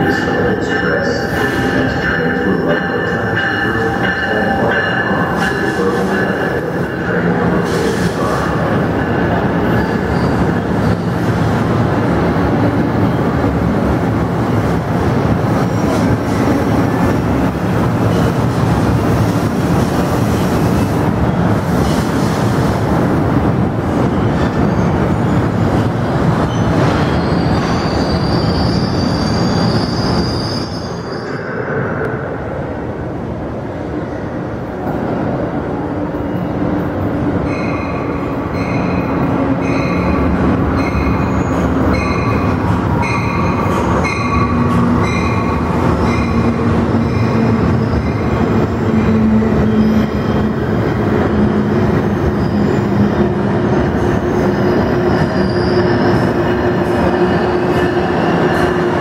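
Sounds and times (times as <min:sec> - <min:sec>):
train cars rumbling by: 0:00.0 - 0:59.0
train rumble with ringing tone: 0:00.0 - 0:59.0
high wheel squeal: 0:26.4 - 0:31.6, 0:52.0 - 0:53.3, 0:54.0 - 0:56.4.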